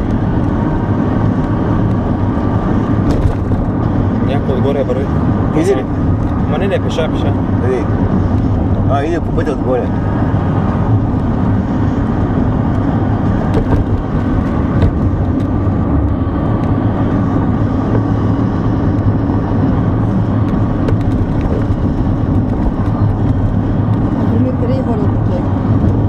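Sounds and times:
car engine and tyre rumble: 0:00.0 - 0:26.0
light knocks from road bumps: 0:12.7 - 0:16.8, 0:20.4 - 0:24.1.

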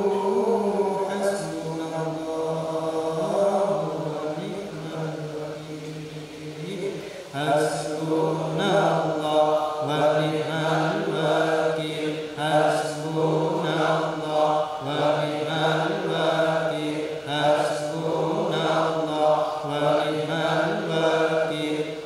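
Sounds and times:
repetitive devotional chanting: 0:00.0 - 0:22.0.

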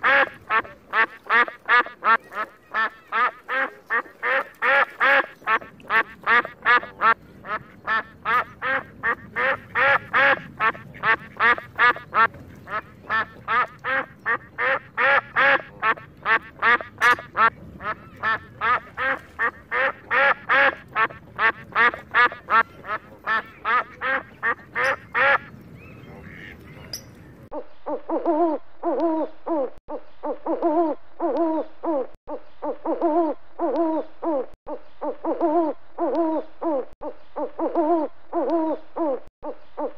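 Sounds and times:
waterfowl calling: 0:00.0 - 0:28.3.

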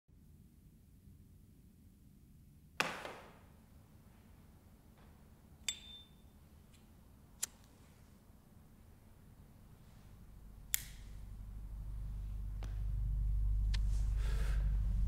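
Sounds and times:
metallic ping: 0:05.6 - 0:06.4
lighter click: 0:07.4 - 0:07.6, 0:10.7 - 0:11.1.

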